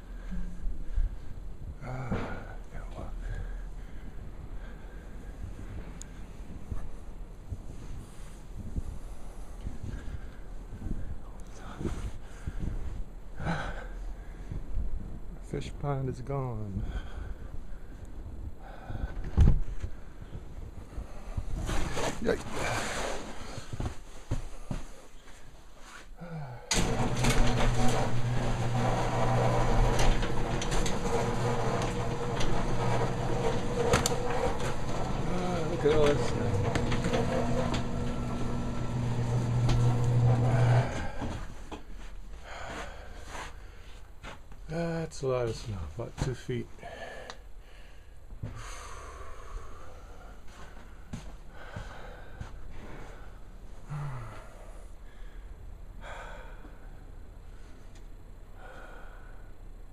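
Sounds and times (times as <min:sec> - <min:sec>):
person breathing: 0:00.0 - 0:06.6, 0:08.0 - 0:14.7, 0:16.8 - 0:18.0, 0:18.6 - 0:21.7, 0:40.4 - 0:44.1, 0:46.8 - 0:57.9, 0:58.5 - 0:59.6
low sighing grunt: 0:01.8 - 0:02.7, 0:26.2 - 0:26.7, 0:53.8 - 0:54.8
garage door clicking on track: 0:26.7 - 0:41.2
garage door opener motor hum: 0:26.7 - 0:41.5.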